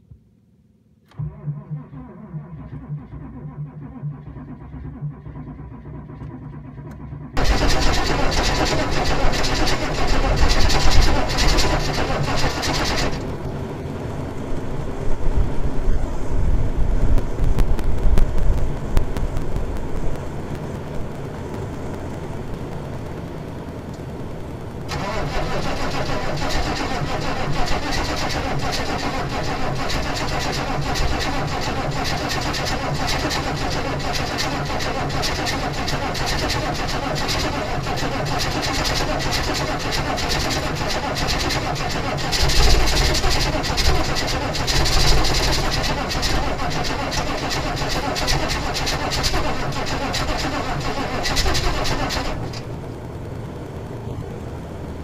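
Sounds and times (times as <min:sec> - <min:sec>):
diesel engine cranking and running: 0:01.1 - 0:15.8, 0:24.8 - 0:54.3.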